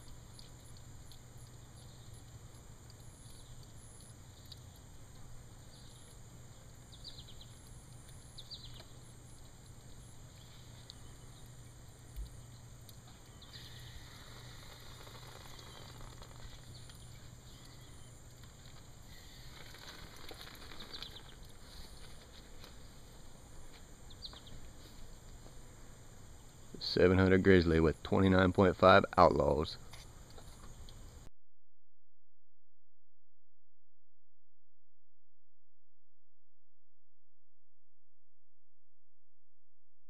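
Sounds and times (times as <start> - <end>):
faint high chirps and ticks: 0.0 - 22.9, 23.6 - 27.0
low steady hum: 0.0 - 31.3.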